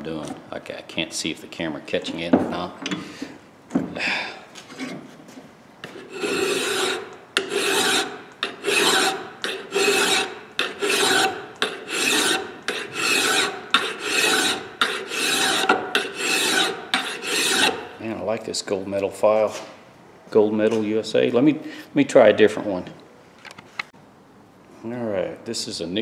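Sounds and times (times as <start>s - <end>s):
file scraping steel: 5.8s - 17.9s.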